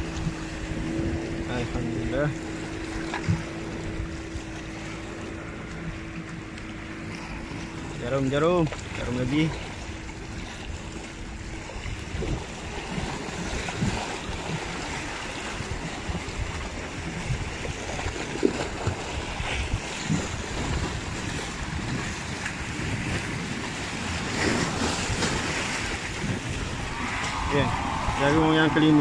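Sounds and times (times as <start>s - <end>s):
wind rumbling on microphone: 0.0s - 29.0s
sea surf washing against rocks: 6.6s - 29.0s.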